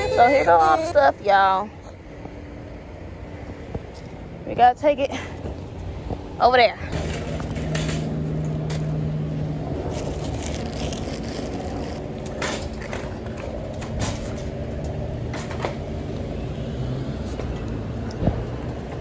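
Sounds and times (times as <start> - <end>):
shopping cart rattling on asphalt: 6.9 - 8.2.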